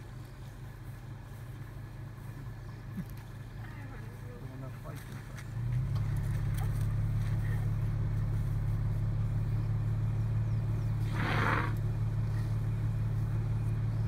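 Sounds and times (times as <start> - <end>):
car engine idling: 0.0 - 14.0
elephant blowing through trunk: 11.0 - 11.8.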